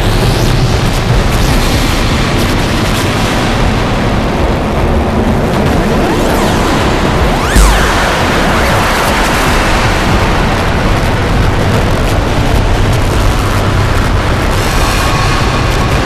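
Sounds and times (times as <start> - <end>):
booming synthesized drums: 0.0 - 16.0
loud synthesized noise: 0.0 - 16.0
steady high tone: 6.6 - 10.4.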